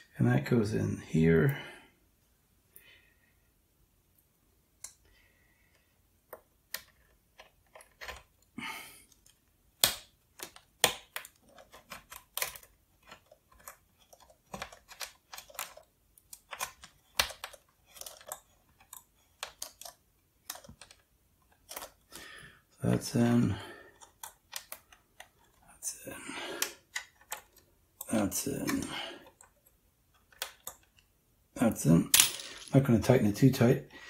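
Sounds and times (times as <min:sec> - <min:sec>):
plastic and metal clicks and scrapes: 0:06.3 - 0:08.5, 0:09.1 - 0:22.2, 0:23.9 - 0:25.7, 0:26.6 - 0:31.1.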